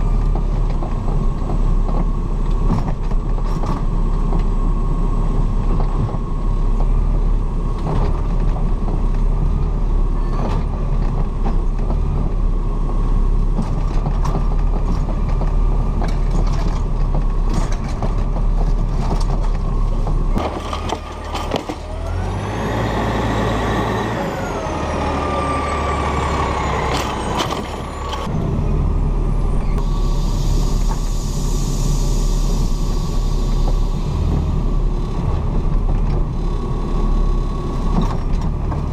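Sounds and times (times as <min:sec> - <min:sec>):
diesel engine running: 0:00.0 - 0:38.9
metal arm clanking and rattling: 0:13.6 - 0:21.9
hydraulic hiss: 0:29.8 - 0:34.2.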